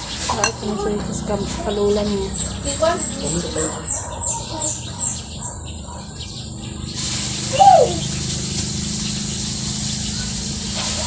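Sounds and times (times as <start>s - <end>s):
steady hiss: 7.0s - 11.0s
faint high chirps: 7.4s - 8.2s.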